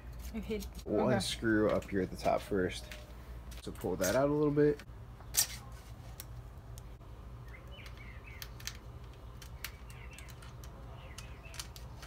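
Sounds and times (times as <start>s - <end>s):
faint birds chirping: 6.6s - 12.0s
pliers and cable clicking: 7.8s - 12.0s.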